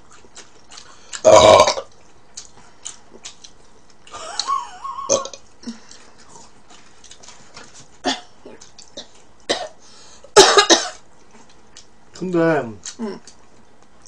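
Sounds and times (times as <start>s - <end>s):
quiet eating sounds: 0.0s - 10.4s, 11.0s - 14.0s
loud burp: 1.2s - 1.9s, 5.0s - 5.4s.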